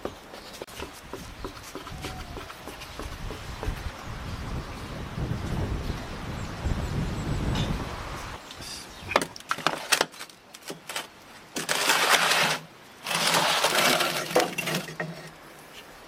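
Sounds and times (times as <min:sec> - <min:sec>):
wind buffeting microphone: 0:00.8 - 0:08.4
tray scraping on brick floor: 0:09.4 - 0:15.4.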